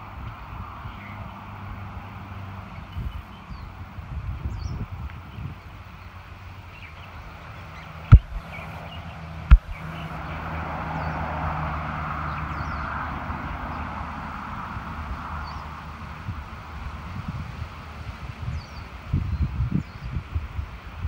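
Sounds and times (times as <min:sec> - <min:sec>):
car engine and road hum: 0:00.0 - 0:18.3
sharp knocks: 0:08.1 - 0:08.5, 0:09.5 - 0:09.8
rushing noise: 0:08.1 - 0:08.8, 0:09.5 - 0:10.8.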